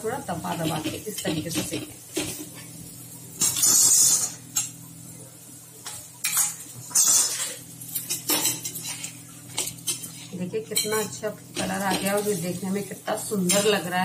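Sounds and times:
metal spatula scraping a griddle: 0:03.4 - 0:04.7, 0:06.2 - 0:11.2.

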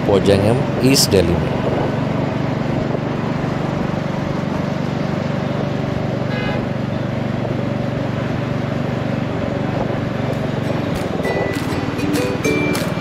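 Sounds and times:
wind and road noise: 0:00.0 - 0:13.0
motorcycle engine running: 0:01.5 - 0:13.0
vehicle horn: 0:06.3 - 0:06.7.

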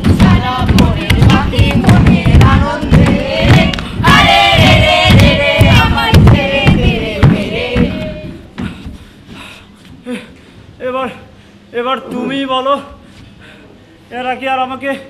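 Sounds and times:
low thumping beat: 0:00.0 - 0:08.8
young voices singing together: 0:00.0 - 0:08.8.

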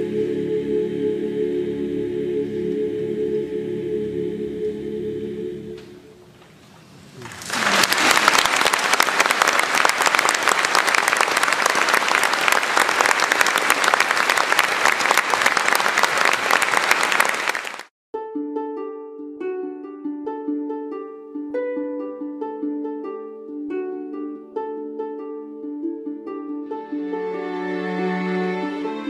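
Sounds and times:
audience applause: 0:07.2 - 0:17.9
music with held chords: 0:18.2 - 0:29.0.

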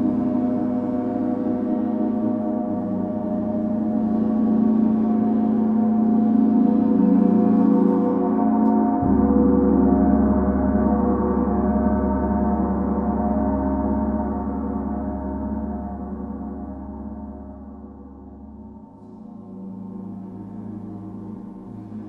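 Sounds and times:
deep low hum: 0:00.0 - 0:22.0.

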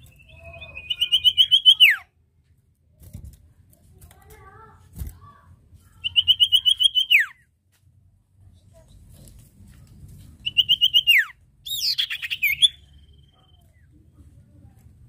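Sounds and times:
soft bird chirps: 0:00.0 - 0:02.1, 0:05.9 - 0:07.5, 0:10.4 - 0:14.4.

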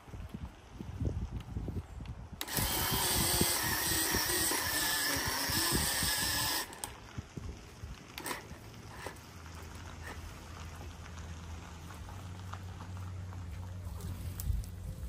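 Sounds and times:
electric pole saw motor whine: 0:02.4 - 0:07.0
brush crackling and snapping: 0:06.6 - 0:15.0.

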